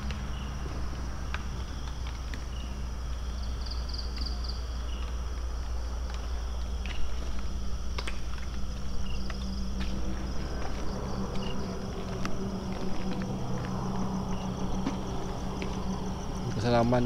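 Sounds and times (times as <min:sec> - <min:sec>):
night insects chirring: 0:00.0 - 0:17.0
low rumble: 0:05.2 - 0:17.0.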